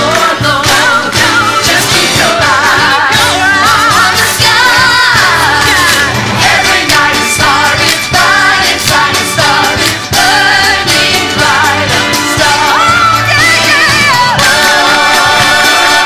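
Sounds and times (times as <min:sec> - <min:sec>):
cast singing with band: 0:00.0 - 0:16.0.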